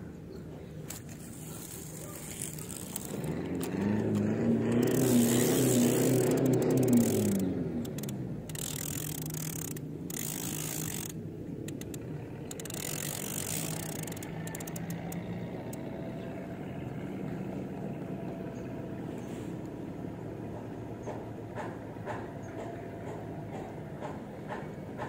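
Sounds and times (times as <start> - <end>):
engine droning: 0.0 - 25.0
light ticks: 1.7 - 15.8.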